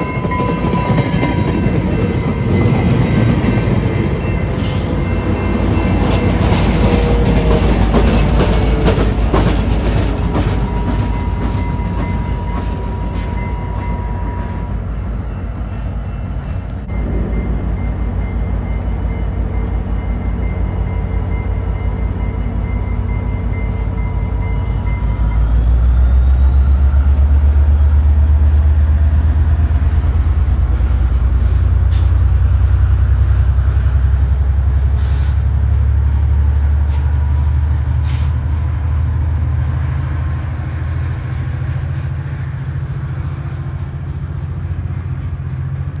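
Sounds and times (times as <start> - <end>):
diesel locomotive engine drone: 0.0 - 46.0
rising whine: 16.1 - 31.3
pulsing beep: 16.9 - 27.3
short air hisses: 35.0 - 35.4, 38.0 - 38.4.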